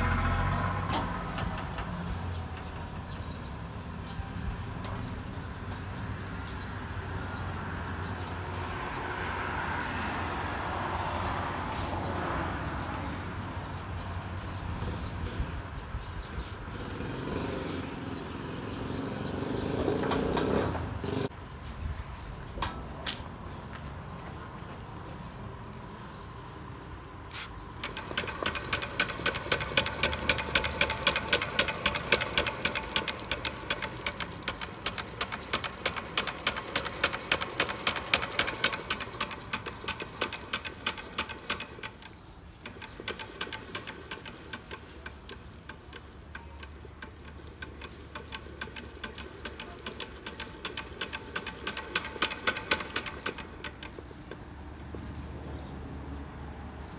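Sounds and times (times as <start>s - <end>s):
crankshaft spinning with fast ticking: 27.8s - 55.4s.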